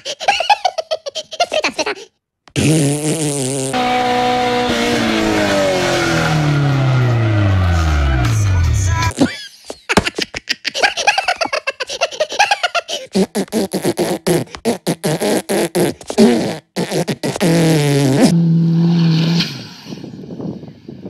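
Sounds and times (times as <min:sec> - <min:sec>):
fart and raspberry noises: 0:02.5 - 0:03.8, 0:13.0 - 0:19.6.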